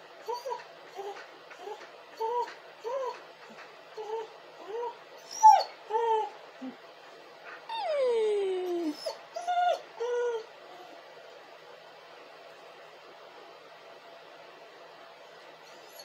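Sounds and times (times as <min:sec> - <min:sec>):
dog whimpering and whining: 0:00.2 - 0:03.2, 0:04.0 - 0:06.8, 0:07.7 - 0:11.1, 0:15.6 - 0:16.0.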